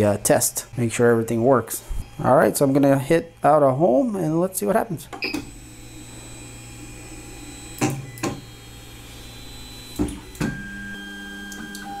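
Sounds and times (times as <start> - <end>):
stepper motors whining: 5.2 - 12.0.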